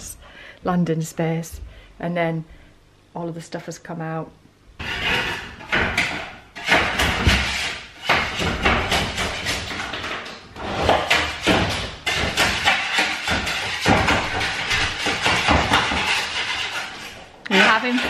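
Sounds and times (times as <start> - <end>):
hand tool scraping wood: 4.8 - 18.0.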